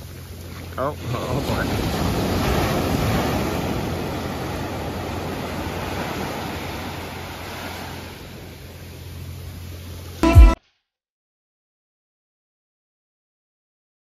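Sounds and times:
ocean surf: 0.4s - 9.0s.

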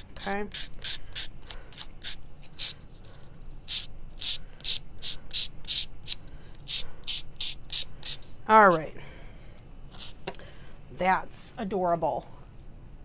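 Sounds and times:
nail file rasping on paper: 0.0s - 2.9s, 3.6s - 8.9s, 9.9s - 10.2s.

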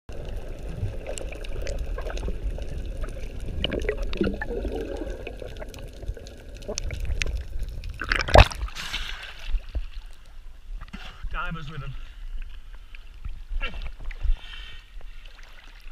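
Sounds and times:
muffled underwater gurgling: 0.2s - 8.6s.

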